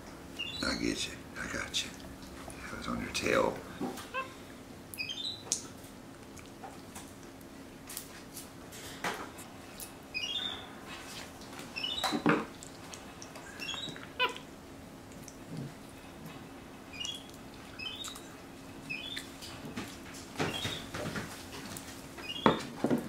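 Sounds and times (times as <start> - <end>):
monkey chirping: 0.4 - 0.7, 4.1 - 4.3, 5.0 - 5.4, 10.1 - 10.6, 11.8 - 12.1, 13.5 - 14.4, 16.9 - 18.2, 18.9 - 19.3.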